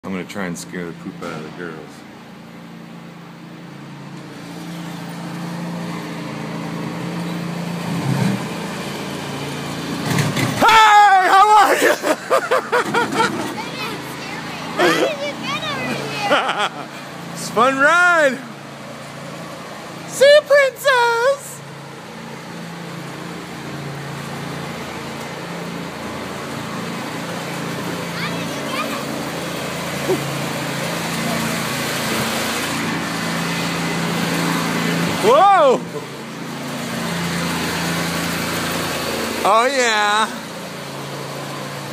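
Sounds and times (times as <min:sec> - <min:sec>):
wheel and road noise: 0:00.0 - 0:41.9
ride-on train motor hum: 0:00.1 - 0:10.3, 0:20.9 - 0:41.9.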